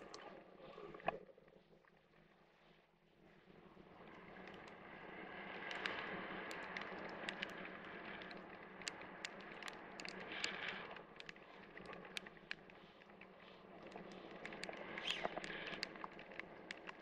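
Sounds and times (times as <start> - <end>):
wind rushing over camera: 3.9 - 17.0
raindrops ticking on camera: 5.6 - 13.2, 13.8 - 17.0.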